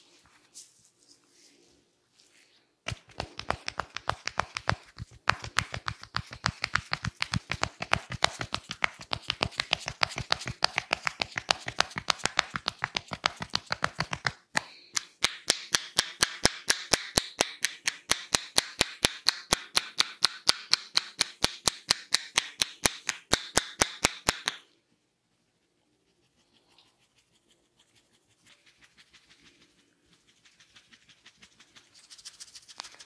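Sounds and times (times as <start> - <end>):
hands striking scalp: 2.9 - 24.6.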